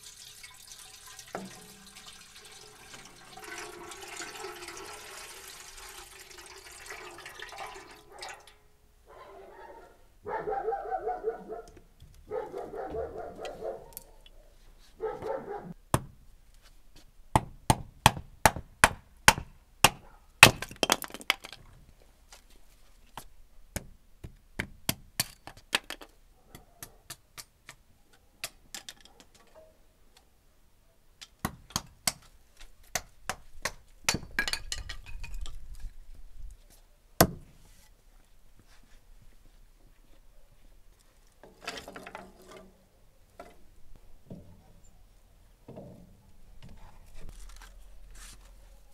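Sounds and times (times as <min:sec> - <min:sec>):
axe chopping kindling: 0:17.4 - 0:21.0, 0:37.2 - 0:37.5.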